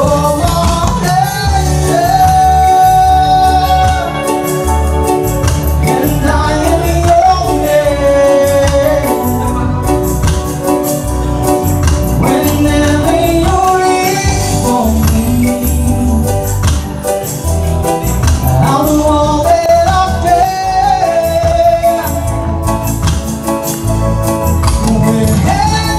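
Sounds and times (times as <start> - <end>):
man singing into microphone: 0.0 - 5.0, 5.7 - 10.2, 12.0 - 17.0, 18.5 - 22.7, 24.6 - 25.9
live reggae band playing: 0.0 - 25.9.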